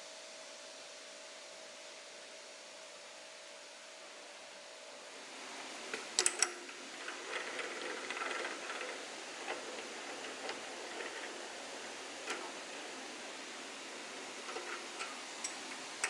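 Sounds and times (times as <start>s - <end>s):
metal scraping: 5.8s - 16.0s.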